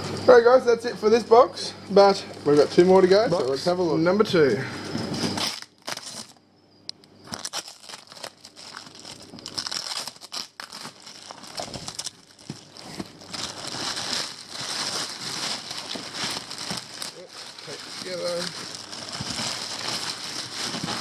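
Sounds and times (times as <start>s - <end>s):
plastic liner crinkling: 5.3s - 6.4s, 7.3s - 21.0s
plastic wrap crinkling and tearing: 5.3s - 6.4s, 7.3s - 21.0s.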